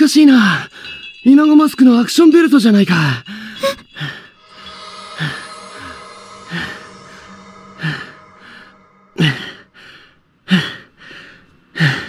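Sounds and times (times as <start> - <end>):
soft background music: 1.2 - 10.1.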